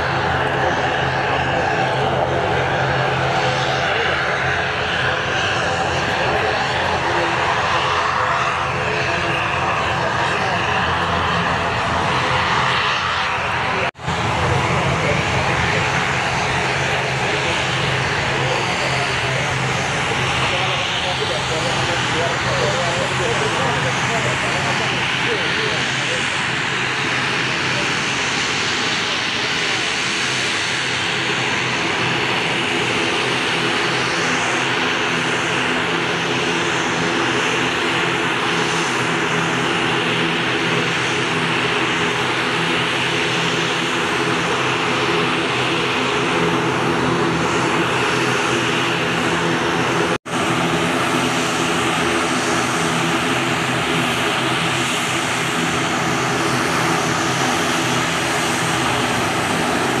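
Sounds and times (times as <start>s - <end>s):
propeller engine drone: 0.0s - 60.0s.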